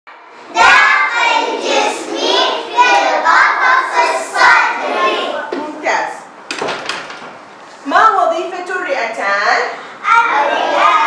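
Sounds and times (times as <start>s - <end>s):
children singing in unison: 0.5s - 5.5s, 10.1s - 11.0s.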